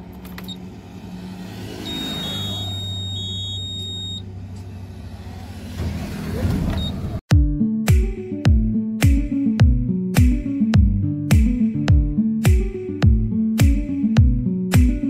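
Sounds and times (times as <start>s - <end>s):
diesel engine cranking and starting: 0.0s - 7.2s
high electronic beep: 1.8s - 4.3s
background music: 7.3s - 15.0s.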